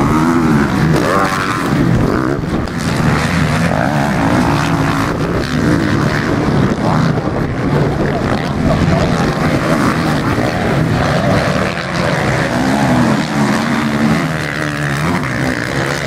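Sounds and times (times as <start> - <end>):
motocross bike engines revving: 0.0 - 16.0.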